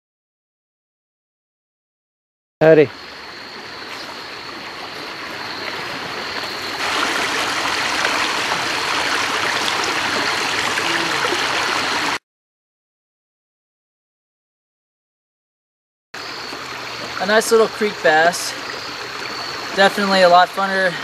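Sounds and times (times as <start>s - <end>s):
creek water rushing: 3.0s - 12.2s, 16.2s - 21.0s.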